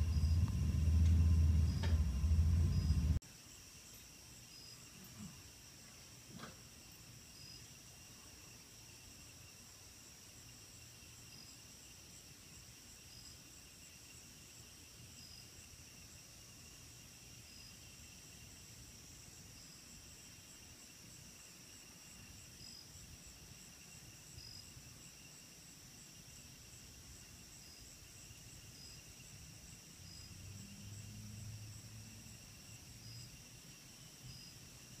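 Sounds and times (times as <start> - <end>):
faint low rumble: 0.0 - 3.2
crickets trilling: 0.0 - 35.0.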